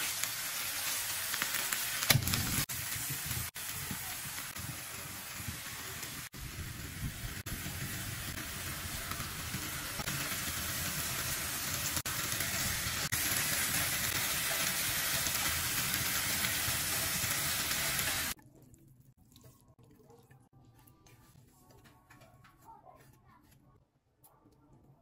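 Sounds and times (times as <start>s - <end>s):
vegetables sizzling in a pan: 0.0s - 18.4s.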